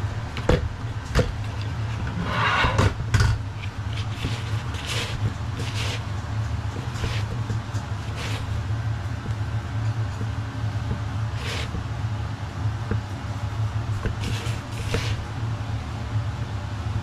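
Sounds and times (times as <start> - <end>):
steady low hum: 0.0 - 17.0
soft hissing rustles: 6.9 - 8.7, 11.3 - 11.9.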